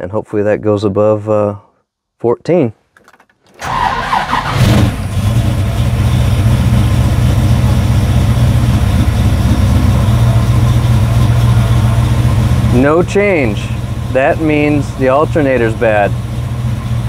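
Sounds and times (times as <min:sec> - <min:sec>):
engine starter cranking: 0:02.9 - 0:05.7
car engine idling: 0:03.0 - 0:17.0.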